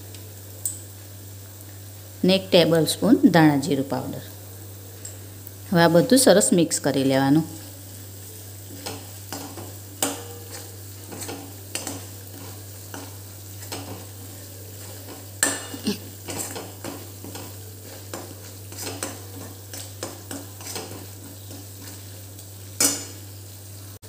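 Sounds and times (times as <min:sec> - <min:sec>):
faint sizzle of frying: 0:00.0 - 0:24.0
spoon scraping metal pan: 0:08.7 - 0:22.1.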